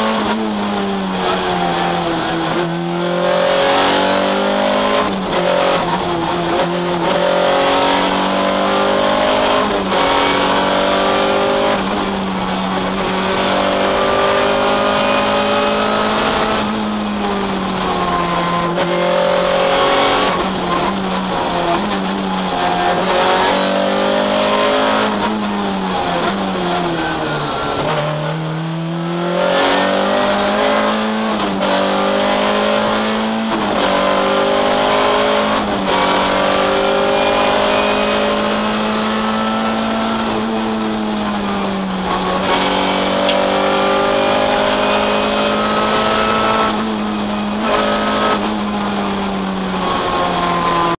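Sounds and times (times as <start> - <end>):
rally car engine at high revs: 0.0 - 51.0.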